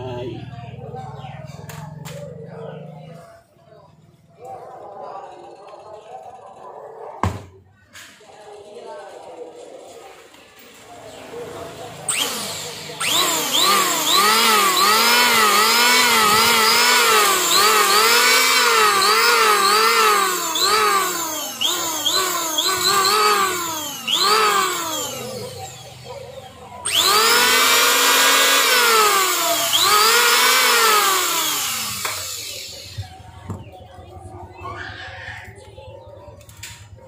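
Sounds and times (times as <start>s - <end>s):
electric hand planer motor whine: 12.1s - 26.1s, 26.8s - 33.1s.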